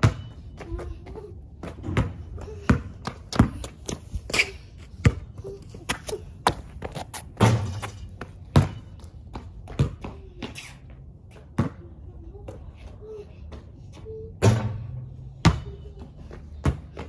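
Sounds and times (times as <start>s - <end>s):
basketball bouncing on concrete: 0.0s - 0.9s, 1.6s - 4.0s, 4.9s - 10.6s, 11.3s - 12.6s, 14.4s - 17.0s.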